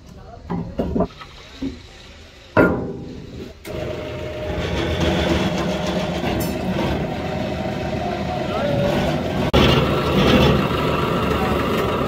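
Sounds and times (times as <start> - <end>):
heavy steel clank: 2.6 - 3.5
hydraulic pump motor running: 3.6 - 12.0.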